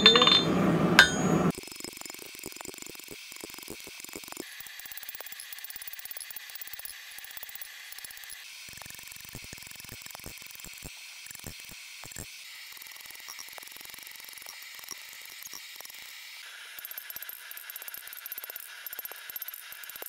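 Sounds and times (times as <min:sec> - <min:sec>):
hammer on hot steel: 0:00.0 - 0:01.5.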